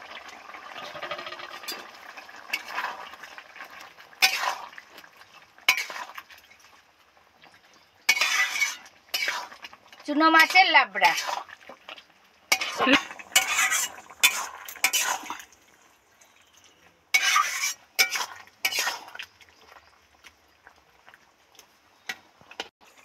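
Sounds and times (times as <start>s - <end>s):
wooden spatula scraping metal pan: 4.2s - 4.6s, 5.7s - 6.1s, 8.1s - 11.5s, 12.5s - 15.5s, 17.1s - 19.2s.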